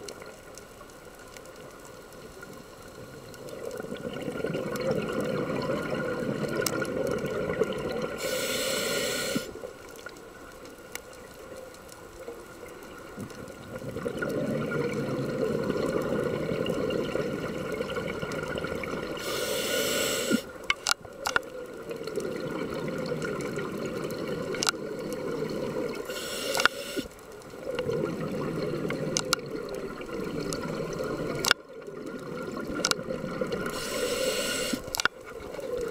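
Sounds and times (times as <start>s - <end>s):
burbling exhaled bubbles: 3.0s - 8.2s, 13.2s - 19.3s, 21.5s - 26.7s, 27.4s - 35.9s
regulator inhale hiss: 8.2s - 9.7s, 19.1s - 20.6s, 26.0s - 27.2s, 33.7s - 35.1s
sharp clicks: 26.5s - 27.1s.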